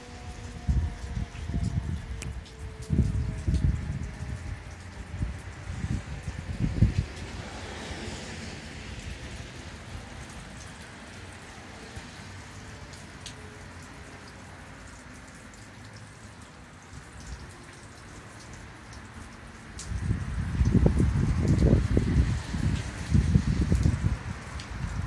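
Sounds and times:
rain falling: 0.0s - 25.0s
raindrops ticking: 0.1s - 7.6s, 8.5s - 25.0s
wind gust hitting microphone: 0.6s - 7.6s, 19.8s - 25.0s.

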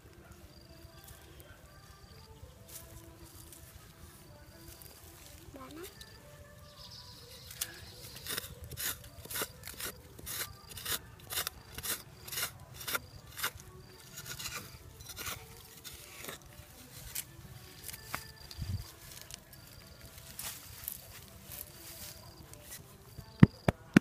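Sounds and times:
rod scraping into sandy soil: 7.2s - 18.5s.

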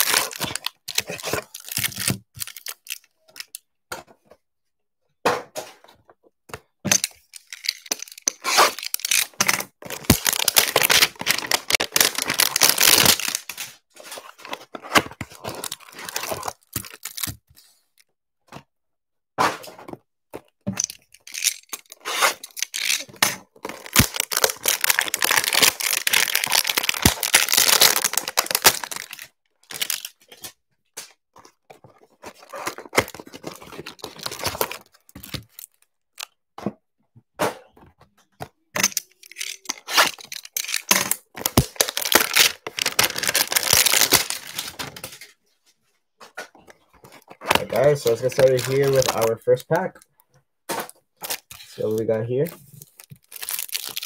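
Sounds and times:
cardboard and plastic tearing: 0.0s - 3.5s, 6.9s - 17.4s, 20.7s - 30.6s, 31.4s - 35.8s, 38.8s - 45.2s, 47.0s - 49.9s, 50.7s - 54.0s.

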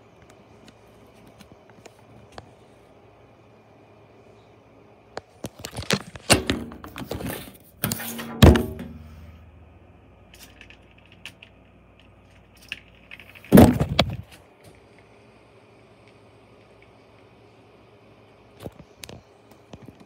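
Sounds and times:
phone handling knocks and rustles: 5.8s - 9.2s, 13.4s - 14.3s
heavy thump: 7.8s - 9.6s, 13.5s - 14.2s.

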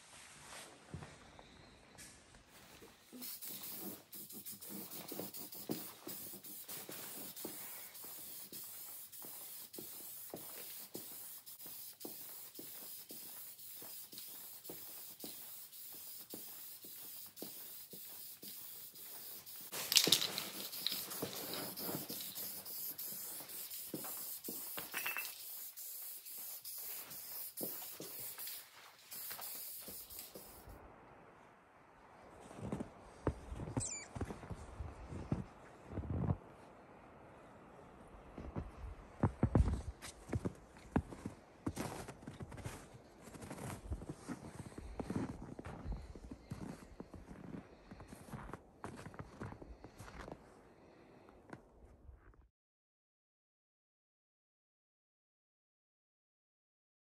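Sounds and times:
aerosol spray can hissing: 3.0s - 30.8s.

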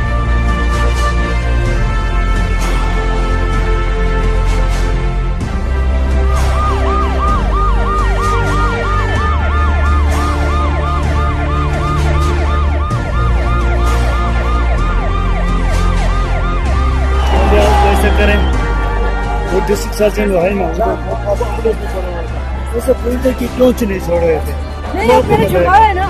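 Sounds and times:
background music with bass line: 0.0s - 26.0s
emergency siren yelping: 6.2s - 22.7s.

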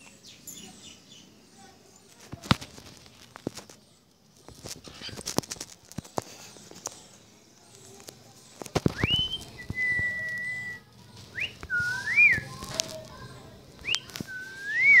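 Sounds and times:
cockatiel whistling: 9.0s - 10.8s, 13.8s - 15.0s.

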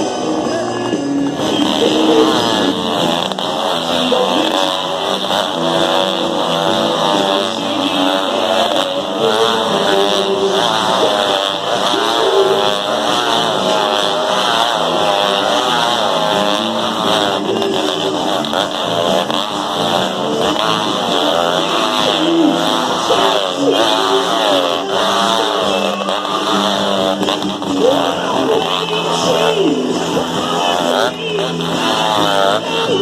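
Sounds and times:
motorcycle engines revving: 0.0s - 33.0s.

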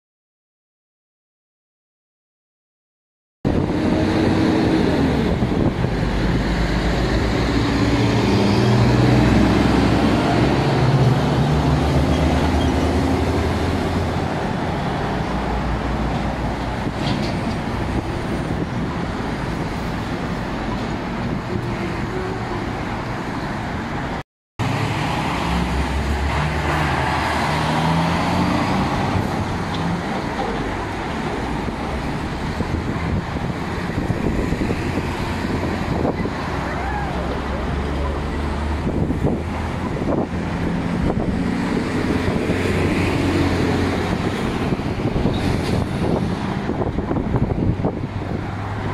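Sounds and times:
heavy truck engine hum: 3.5s - 48.9s
road traffic: 3.5s - 48.9s.

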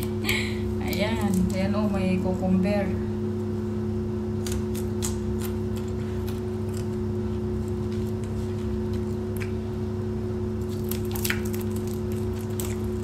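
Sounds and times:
low electrical hum: 0.0s - 13.0s
chewing crisp cucumber: 4.4s - 9.6s, 10.6s - 13.0s.

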